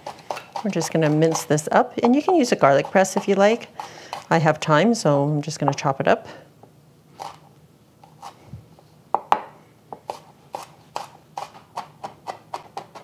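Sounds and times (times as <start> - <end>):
knife chopping on wooden board: 9.1 - 13.0.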